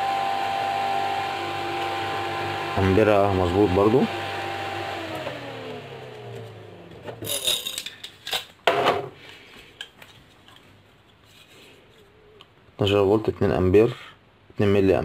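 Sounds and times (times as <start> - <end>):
cooling fan winding down: 0.0 - 7.2.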